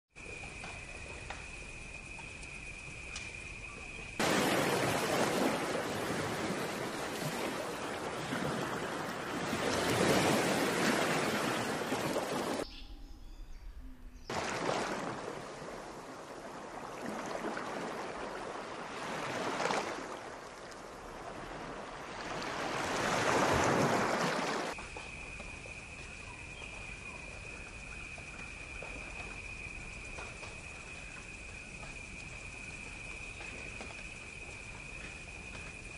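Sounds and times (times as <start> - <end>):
sea waves breaking: 4.2 - 12.6, 14.3 - 24.8.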